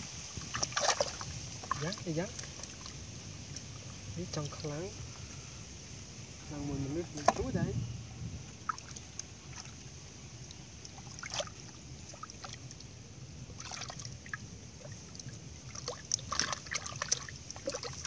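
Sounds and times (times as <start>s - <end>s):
low steady rumble: 0.0s - 18.0s
hands sloshing in muddy water: 0.3s - 3.8s, 8.6s - 9.9s, 10.8s - 18.0s.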